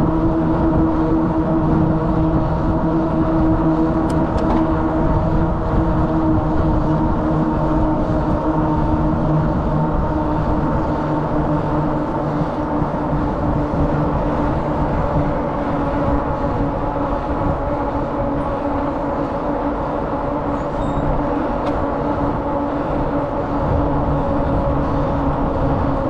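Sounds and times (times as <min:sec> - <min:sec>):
bicycle tyres humming on asphalt: 0:00.0 - 0:26.0
wind rushing over microphone: 0:00.0 - 0:26.0.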